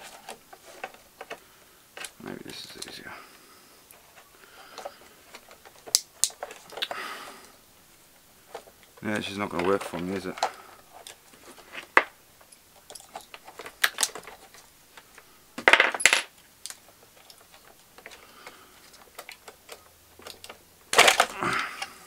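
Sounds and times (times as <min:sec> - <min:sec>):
clicks of small hard parts: 0:04.7 - 0:07.0, 0:12.8 - 0:21.9.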